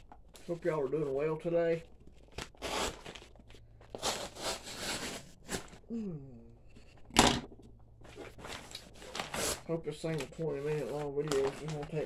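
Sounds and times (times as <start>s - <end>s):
paper bag crinkling and tearing: 0.3s - 5.8s, 8.1s - 12.0s
sharp paper rip: 2.4s - 3.2s.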